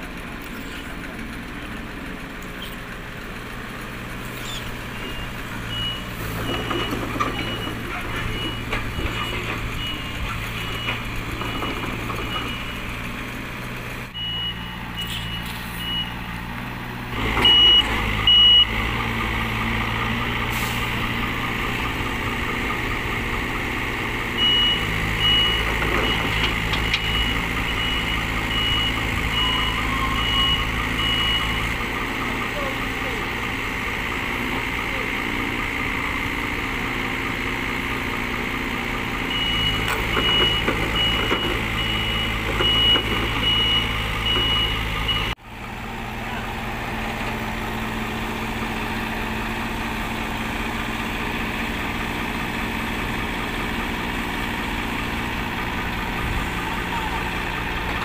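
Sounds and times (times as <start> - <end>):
excavator diesel engine running: 0.0 - 58.0
travel alarm beeping: 17.4 - 18.7, 24.4 - 31.6, 39.3 - 45.4.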